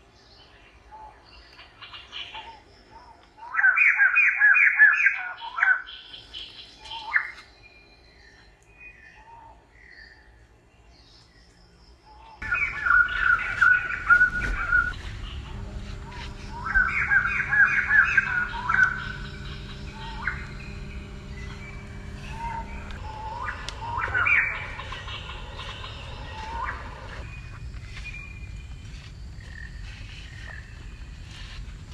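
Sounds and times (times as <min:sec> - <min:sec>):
birds chirping: 0:00.2 - 0:31.9
rising bird calls: 0:12.4 - 0:31.4.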